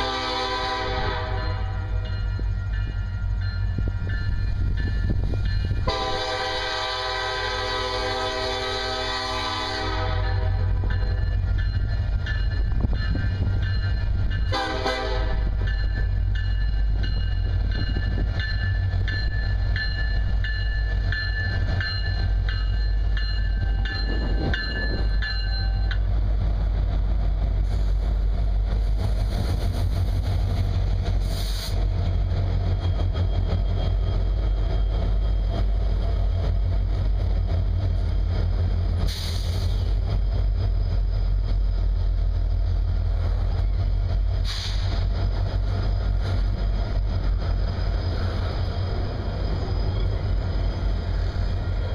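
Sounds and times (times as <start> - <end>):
locomotive engine rumble: 0.0 - 51.9
rolling train wheels: 0.0 - 51.9
bell ringing: 15.6 - 26.0
sharp high-pitched squeals: 47.3 - 51.9.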